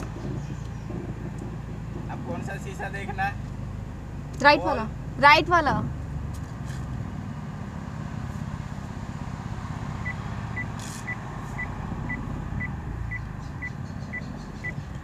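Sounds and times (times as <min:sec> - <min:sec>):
car engine running low: 0:00.0 - 0:15.0
parking sensor short high beeps: 0:10.0 - 0:14.8.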